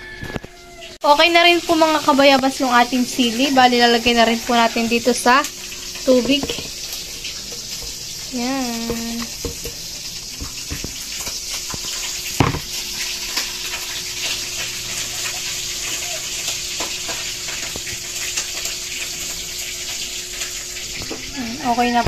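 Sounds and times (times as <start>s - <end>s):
knock on pot: 6.2s - 6.8s, 8.8s - 9.8s, 12.4s - 12.7s.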